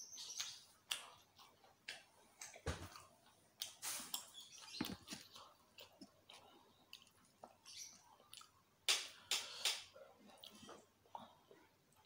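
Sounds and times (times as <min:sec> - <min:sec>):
chewing: 0:00.8 - 0:08.6.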